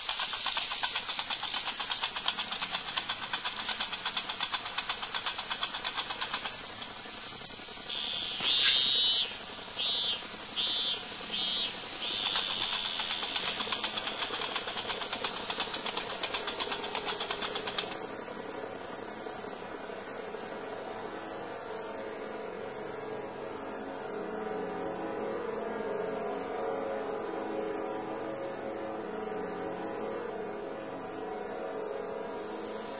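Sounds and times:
insects chirring: 0:00.0 - 0:21.7, 0:32.0 - 0:32.9
insect chirps and trill: 0:00.0 - 0:24.2, 0:25.2 - 0:32.9.

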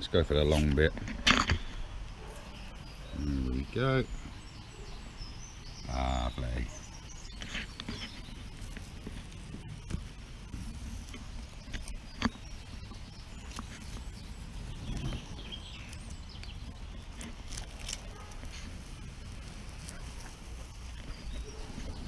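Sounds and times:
tape peeling crackles: 0:07.3 - 0:22.0.

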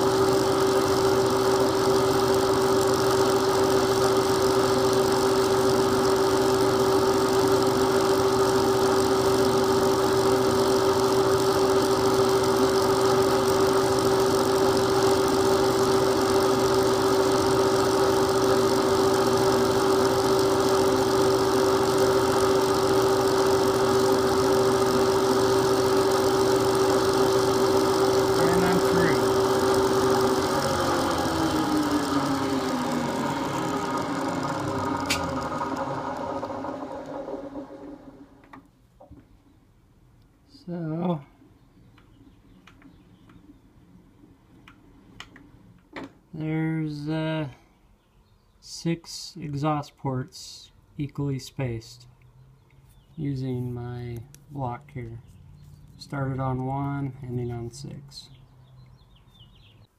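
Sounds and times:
milling machine spindle whine: 0:00.0 - 0:38.6.

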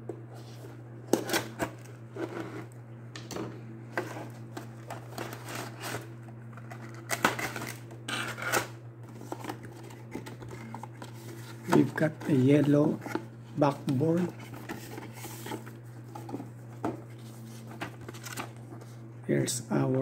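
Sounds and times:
cardboard and plastic rustling: 0:03.9 - 0:19.0.

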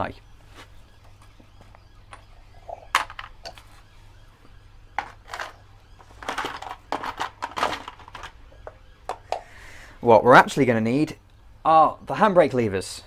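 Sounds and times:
small metal parts clinking: 0:06.2 - 0:08.3.

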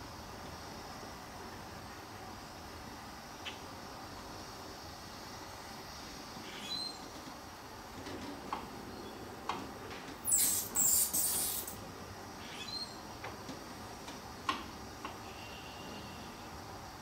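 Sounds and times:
gas torch hissing: 0:10.2 - 0:11.9.

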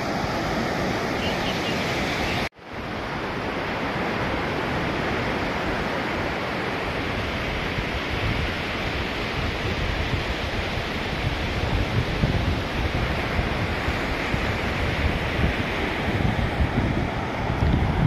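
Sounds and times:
sea surf on a beach: 0:00.0 - 0:18.0
wind buffeting microphone: 0:07.0 - 0:18.0.

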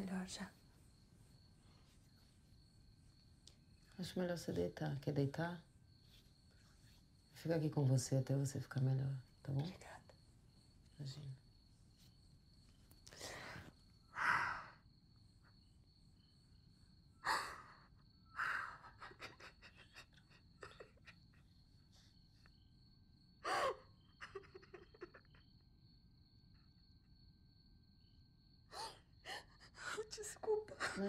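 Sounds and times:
woman crying: 0:18.4 - 0:21.5, 0:23.4 - 0:25.4.

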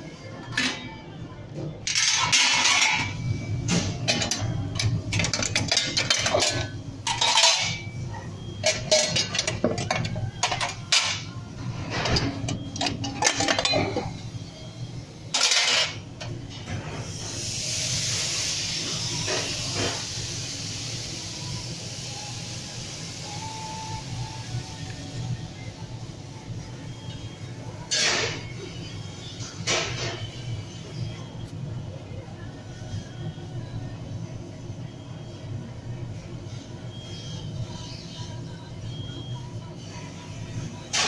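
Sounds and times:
hissing sizzle on hot grill: 0:17.1 - 0:25.2.

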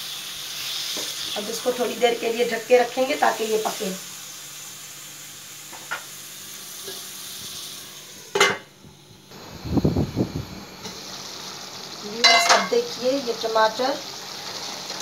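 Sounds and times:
food sizzling in a pan: 0:00.0 - 0:15.0
lid clattering: 0:12.2 - 0:12.8
metal lid clink: 0:12.2 - 0:12.8.

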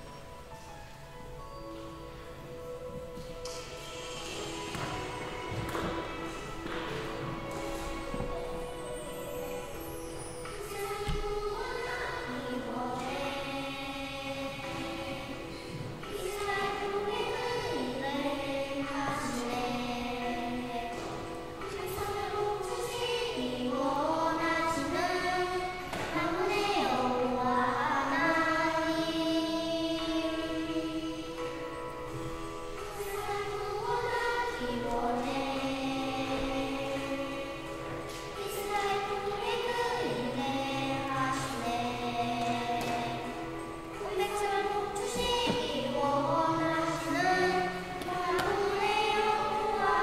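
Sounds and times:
musical accompaniment: 0:00.0 - 0:50.0
girls singing together: 0:02.7 - 0:50.0.

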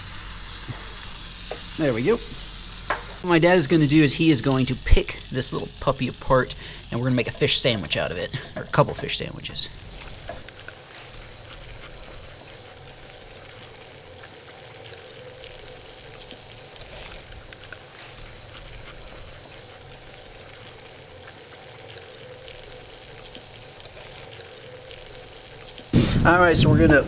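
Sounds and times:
butter sizzling in a pan: 0:00.0 - 0:26.6.

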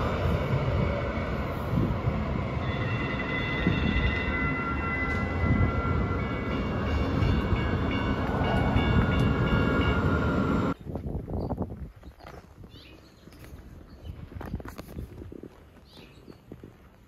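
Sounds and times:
train rumbling past: 0:00.0 - 0:10.8.

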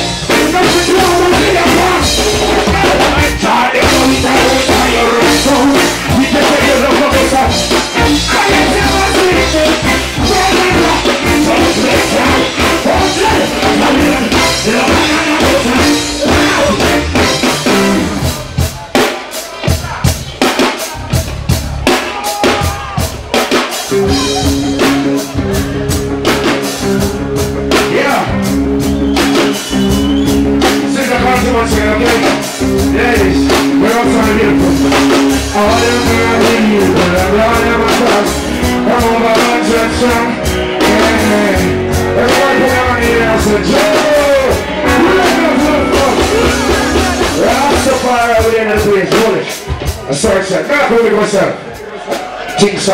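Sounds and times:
man singing into microphone: 0:00.0 - 0:17.4, 0:30.8 - 0:50.3
live band playing: 0:00.0 - 0:52.9.

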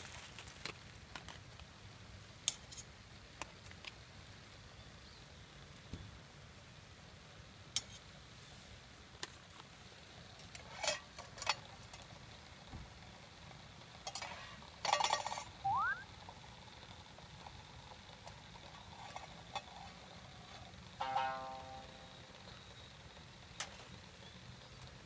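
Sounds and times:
metal utensils clinking on pot: 0:10.5 - 0:12.0, 0:14.0 - 0:15.6, 0:21.0 - 0:22.2
brief rising squeak: 0:15.6 - 0:16.0.

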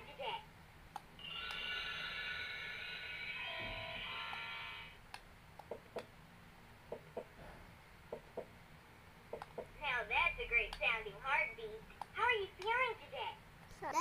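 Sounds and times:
buzzy electronic toy sound effect: 0:01.2 - 0:05.0.

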